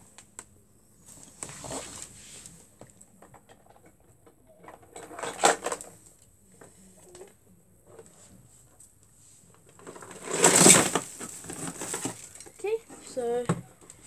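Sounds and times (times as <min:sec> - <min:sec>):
objects being handled: 0:01.1 - 0:14.0
loud clatter: 0:09.9 - 0:12.3.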